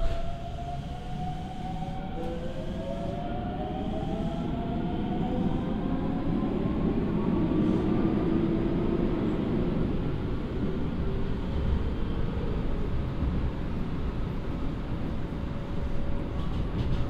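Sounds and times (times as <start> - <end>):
train wheel running noise: 16.2 - 17.0.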